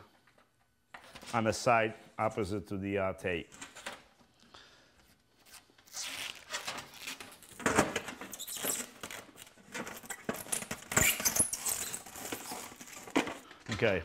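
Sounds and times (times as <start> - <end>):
plastic film peeling off crackling: 5.4 - 7.7.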